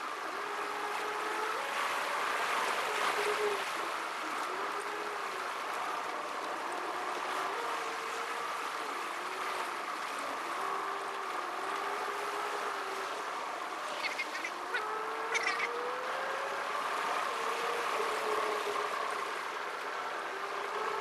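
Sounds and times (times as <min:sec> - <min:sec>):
road noise: 0:09.2 - 0:21.0.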